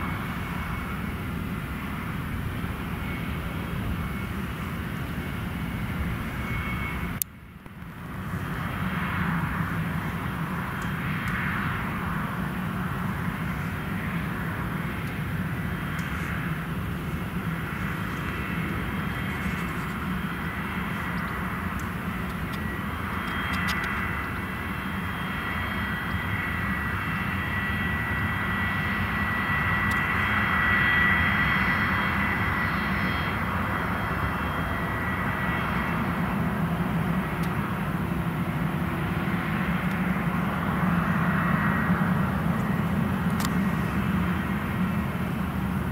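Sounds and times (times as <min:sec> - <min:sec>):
jet engines with high whine: 0:00.0 - 0:45.9.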